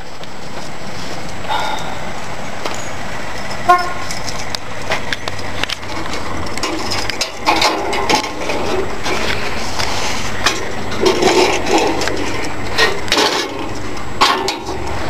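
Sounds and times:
knocks and clicks: 4.2 - 9.5.

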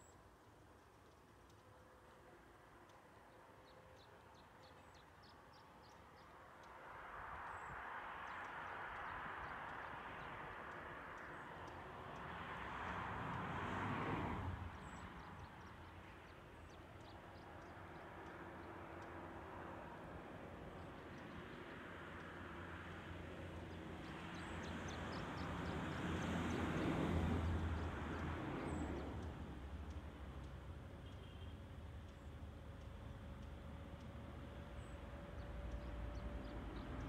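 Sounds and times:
vehicle passing: 7.0 - 16.8, 18.2 - 37.0.

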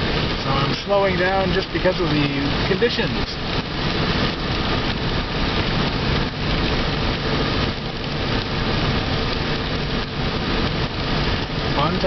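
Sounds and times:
rain on a car: 0.0 - 12.0
windshield wipers sweeping: 0.0 - 12.0.

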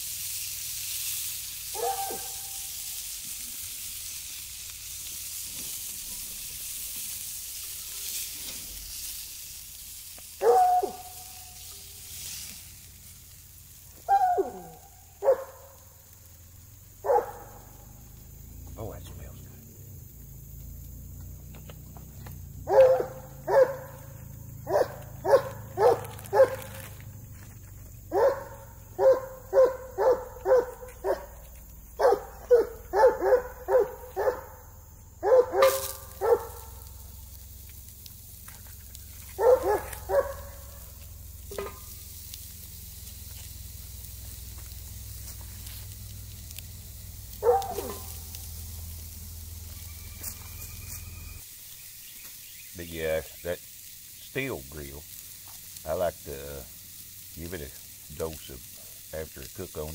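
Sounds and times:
dog barking: 1.7 - 2.6, 10.4 - 11.9, 14.0 - 15.8, 17.0 - 17.8, 22.6 - 26.9, 28.1 - 31.4, 32.0 - 36.8, 39.3 - 40.9, 47.4 - 48.3.

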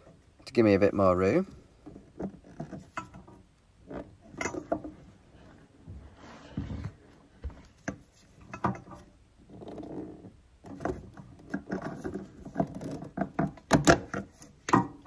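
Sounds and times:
rustling: 1.4 - 15.0
plastic fittings clicking and knocking: 10.6 - 15.0.

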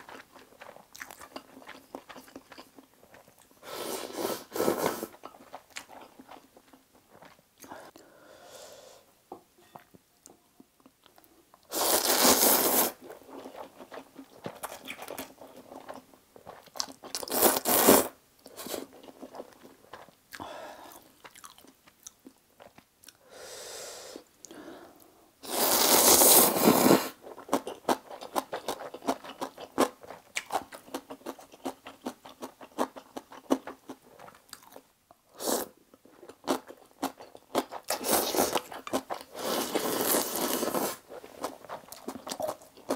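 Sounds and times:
wet chewing: 0.0 - 3.6, 18.5 - 23.2
loud noodle slurps: 11.7 - 13.0, 17.3 - 18.1, 25.4 - 27.2, 39.3 - 41.0.

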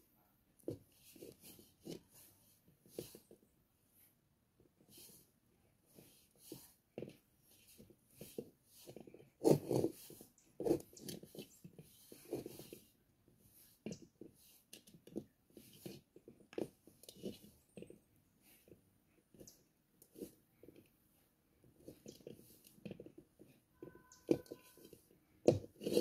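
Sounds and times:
dough squishing against metal bowl: 6.6 - 26.0.

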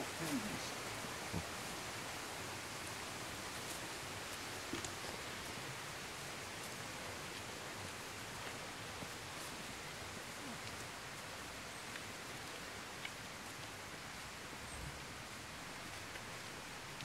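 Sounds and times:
steady outdoor hiss: 0.0 - 17.0
faint ticks: 11.8 - 14.2.

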